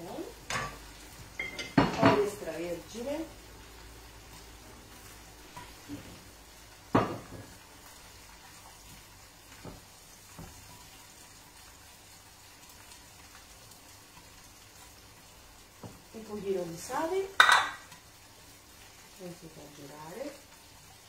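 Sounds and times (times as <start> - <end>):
fish sizzling on griddle: 0.0 - 21.0
knocks of kitchen things: 1.4 - 2.3, 6.9 - 7.5, 17.4 - 17.8.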